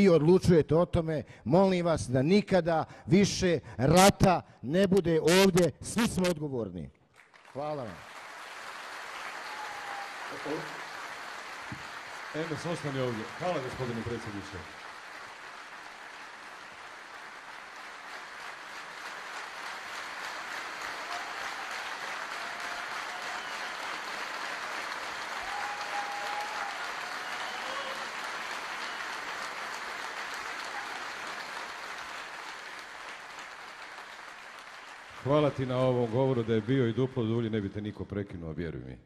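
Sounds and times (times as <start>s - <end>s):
audience applauding: 7.1s - 37.7s.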